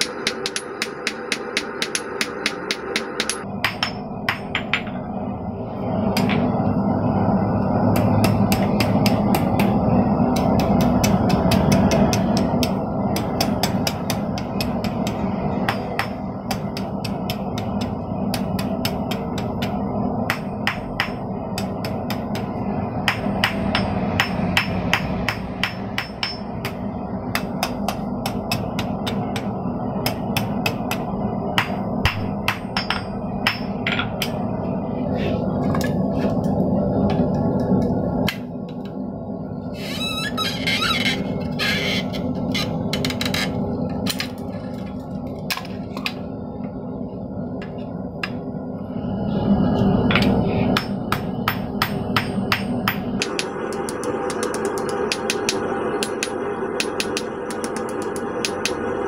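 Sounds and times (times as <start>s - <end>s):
hammer striking steel on anvil: 0.0s - 5.0s, 7.9s - 34.4s, 50.1s - 58.8s
low rushing noise: 0.0s - 39.8s, 43.6s - 59.0s.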